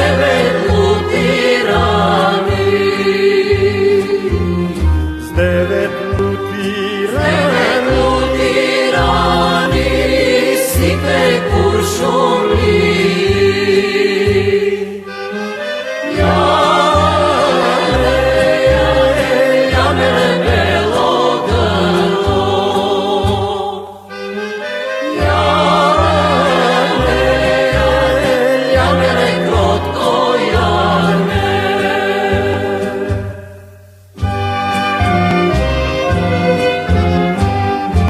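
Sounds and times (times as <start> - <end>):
backing singers: 0.0 - 24.1, 25.0 - 33.6
instrumental accompaniment: 0.0 - 38.0
man singing folk song: 5.2 - 8.4.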